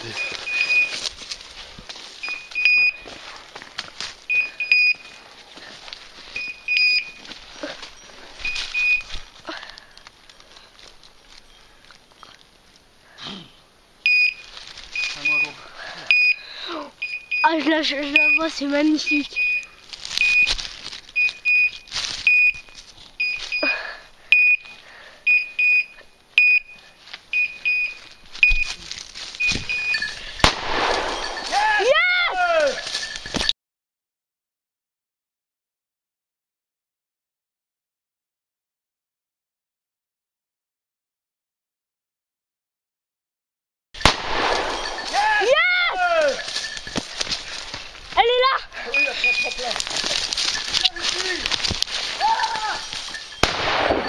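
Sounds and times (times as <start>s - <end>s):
high beeper collar beeps: 0.0s - 1.0s, 2.2s - 3.1s, 4.3s - 5.2s, 6.4s - 7.3s, 8.4s - 9.1s, 14.1s - 16.4s, 17.0s - 20.6s, 21.2s - 28.8s, 29.4s - 30.4s, 31.0s - 31.6s, 44.0s - 45.3s, 46.2s - 47.0s, 48.9s - 51.0s
twigs and brush crackling: 0.0s - 13.0s, 14.0s - 25.6s, 26.2s - 33.5s, 44.0s - 54.0s
branches and dry leaves rustling: 0.0s - 13.2s, 13.8s - 33.5s, 44.0s - 54.0s.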